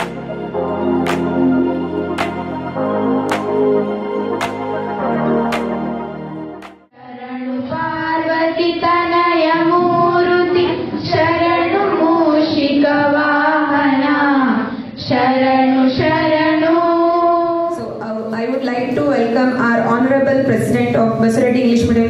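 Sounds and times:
instrumental music: 0.0 - 7.0
girls singing together: 7.0 - 17.7.

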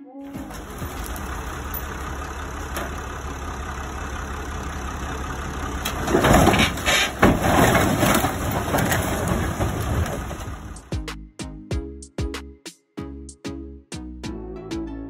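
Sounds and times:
metal knocks and scraping: 0.4 - 3.1, 5.6 - 10.9
heavy machine engine running: 0.4 - 10.9.

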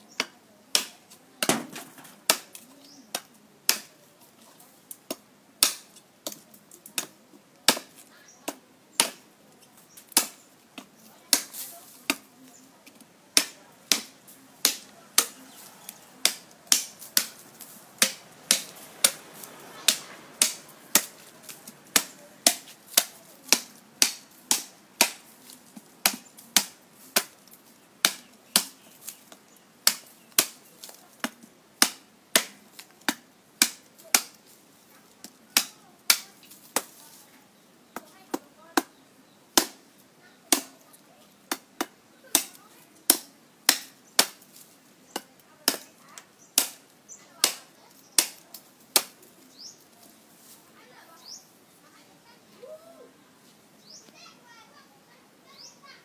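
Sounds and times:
knife chopping bamboo: 0.2 - 3.9, 5.0 - 6.4, 7.0 - 9.2, 10.0 - 12.3, 13.3 - 17.4, 18.0 - 27.4, 28.0 - 34.4, 35.2 - 37.0, 38.0 - 39.8, 40.5 - 40.8, 41.5 - 44.4, 45.1 - 45.9, 46.6 - 49.2.

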